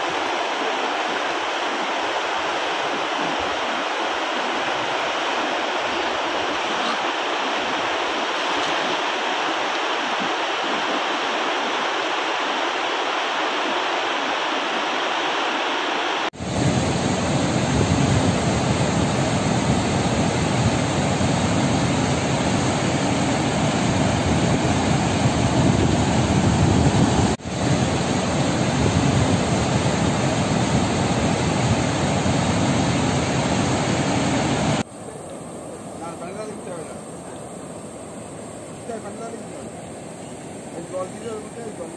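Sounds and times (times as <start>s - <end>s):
river water rushing: 0.0s - 34.9s.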